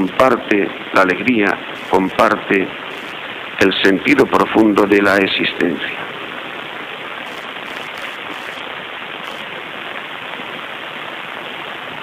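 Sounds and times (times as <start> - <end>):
radio broadcast hiss: 0.0 - 12.0.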